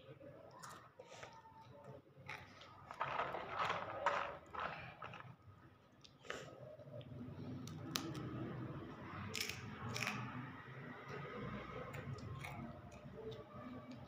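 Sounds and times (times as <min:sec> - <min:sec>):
child chewing crisp snack: 0:00.4 - 0:06.7, 0:09.2 - 0:14.0.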